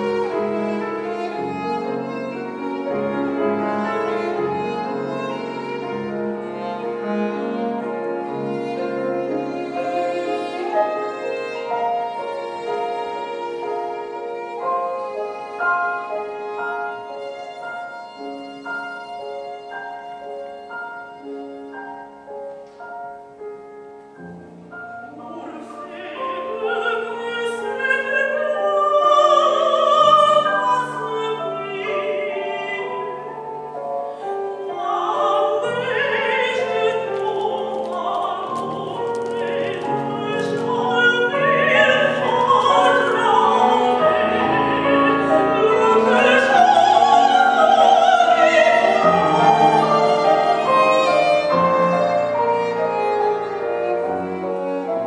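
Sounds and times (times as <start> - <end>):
viola playing: 0.0 - 55.0
woman singing art song: 25.0 - 33.6, 34.5 - 51.9.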